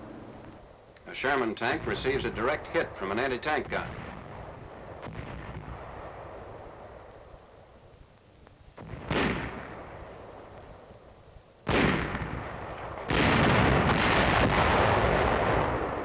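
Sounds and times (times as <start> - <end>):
cannon blasts: 1.7 - 7.2, 8.8 - 10.6, 11.6 - 16.0
shell bursts: 8.8 - 10.8, 11.7 - 16.0.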